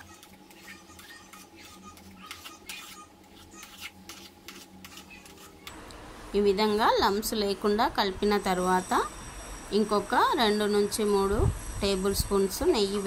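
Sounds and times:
spoon scraping in pan: 0.1 - 5.6.

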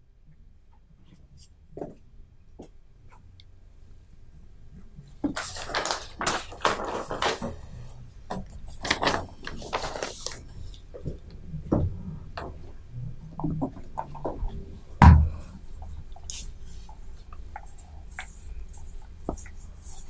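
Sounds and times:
objects being handled: 5.2 - 12.8.

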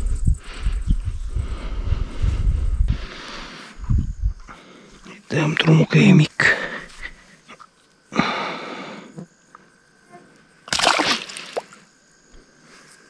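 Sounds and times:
water splashing: 10.7 - 11.8.

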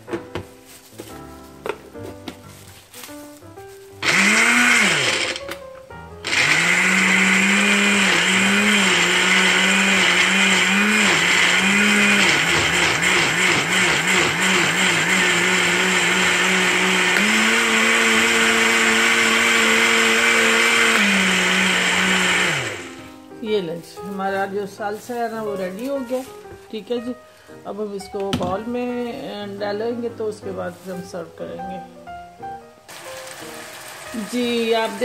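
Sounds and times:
blender chopping vegetables: 4.0 - 5.6, 6.2 - 23.0, 32.9 - 35.0.

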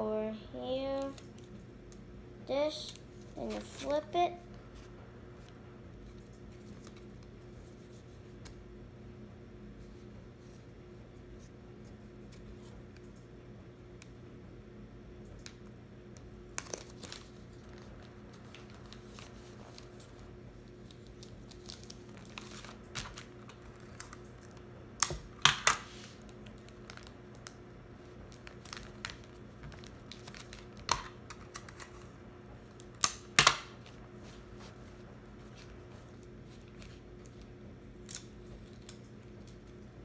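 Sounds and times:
faint low hum: 0.0 - 40.0
paper and tape crinkling: 4.7 - 8.6, 16.5 - 24.7, 25.7 - 32.1, 33.8 - 39.9.

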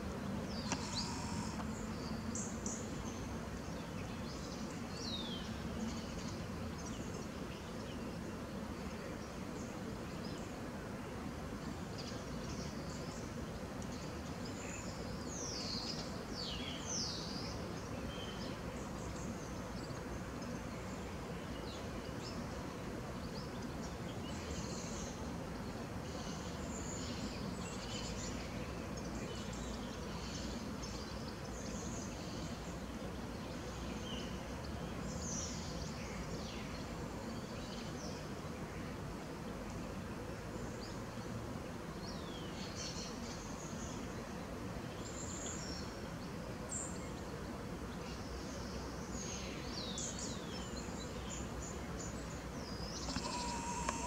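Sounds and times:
steady outdoor background hum: 0.0 - 54.0
small birds chirping: 0.5 - 8.2, 48.0 - 54.0.

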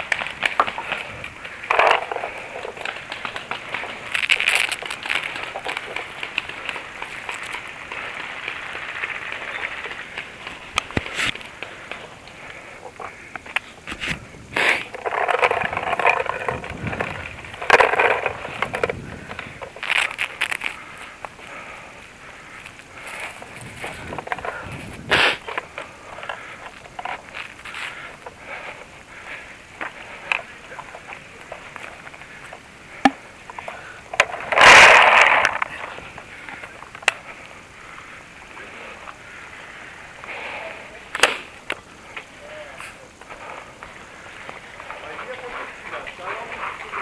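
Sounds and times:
sharp snaps and clicks: 41.1 - 42.9.

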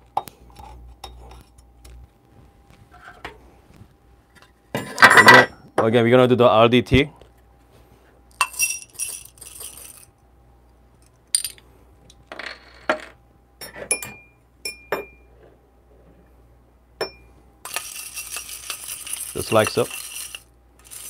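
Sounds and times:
beans rattling while stirred: 8.5 - 10.1, 17.7 - 21.0
coffee beans pouring into metal cup: 17.7 - 21.0.

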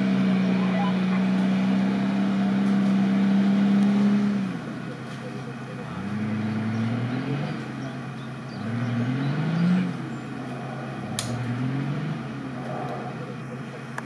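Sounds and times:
engine revving: 0.0 - 14.0
sharp click: 11.2 - 11.4.

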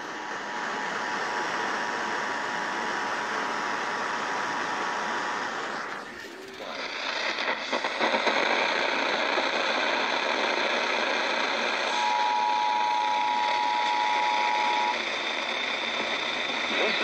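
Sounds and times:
radio static hiss: 4.5 - 17.0.

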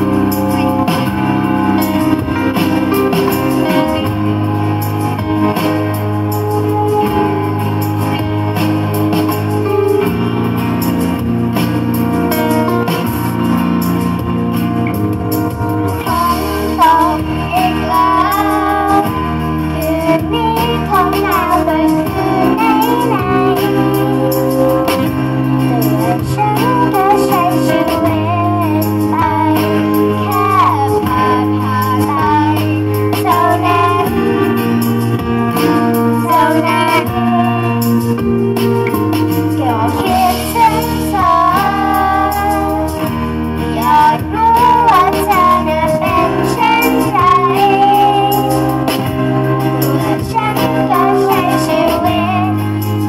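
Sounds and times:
pop backing track: 0.0 - 53.0
girls singing into microphones: 15.9 - 38.4, 39.5 - 53.0.

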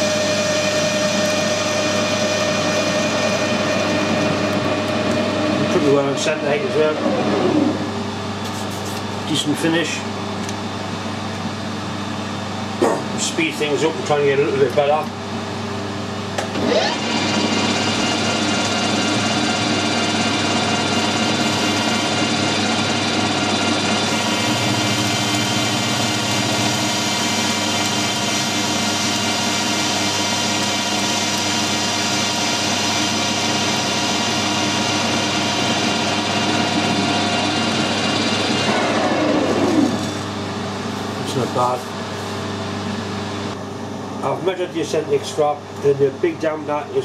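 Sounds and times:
lathe tool cutting metal: 0.0 - 7.8, 16.6 - 40.2
metal lathe gear whine: 0.0 - 8.1, 16.5 - 40.6.

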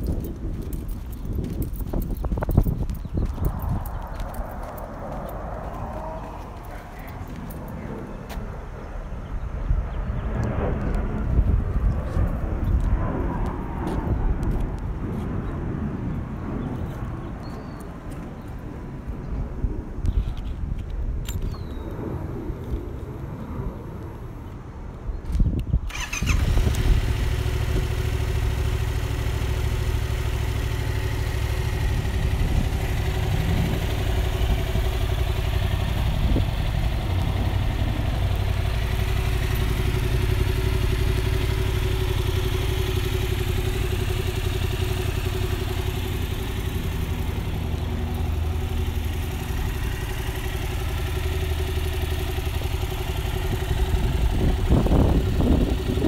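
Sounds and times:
motorcycle engine starting and idling: 0.0 - 9.2, 25.2 - 56.0.

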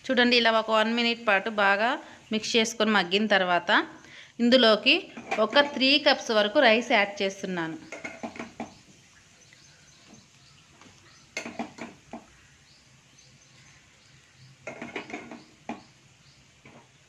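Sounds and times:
spoon scraping a pan: 5.0 - 5.9, 7.8 - 8.8, 11.3 - 12.3, 14.6 - 15.9.

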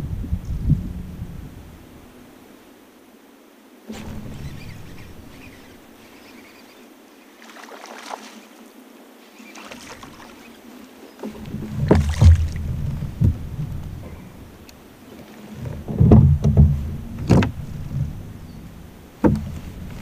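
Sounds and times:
knocks and thumps against kayak hull: 3.9 - 6.6, 9.5 - 10.5, 11.2 - 20.0
low rumble: 11.4 - 14.9.

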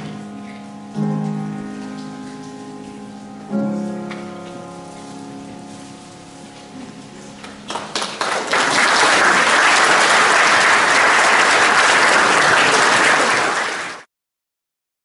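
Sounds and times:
audience applauding: 7.6 - 14.1.

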